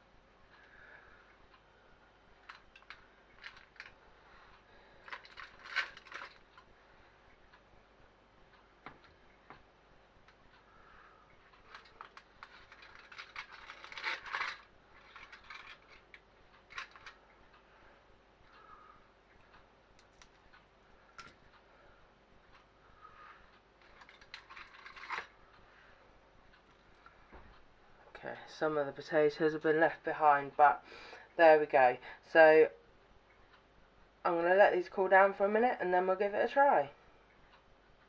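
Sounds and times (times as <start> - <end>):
aluminium foil crinkling: 2.4 - 4.0, 4.8 - 6.6, 11.6 - 17.2, 23.8 - 25.4.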